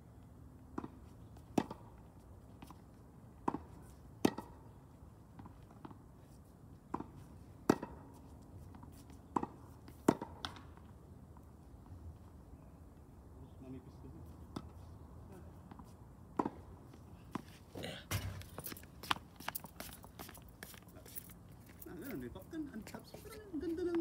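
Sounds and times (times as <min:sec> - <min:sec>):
tennis ball struck by rackets: 0:03.4 - 0:04.7, 0:06.9 - 0:08.1, 0:09.3 - 0:10.8, 0:16.3 - 0:16.7.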